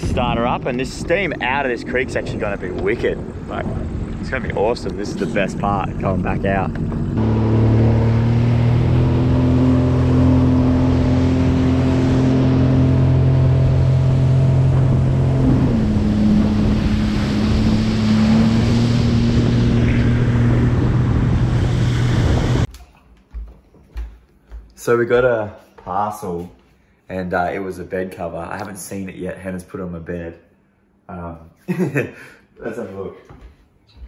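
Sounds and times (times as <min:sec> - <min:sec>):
jet ski engine hum: 0:00.0 - 0:22.7
wind: 0:00.0 - 0:22.7.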